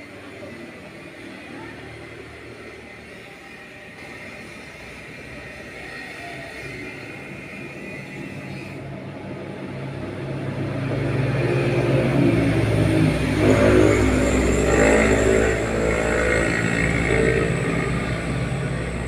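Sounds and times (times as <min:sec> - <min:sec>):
vehicle engine passing: 0:09.9 - 0:19.0.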